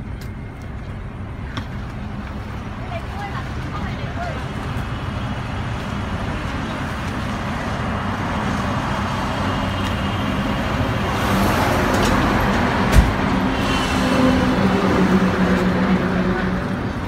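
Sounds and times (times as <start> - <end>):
road traffic rumble: 0.0 - 17.0.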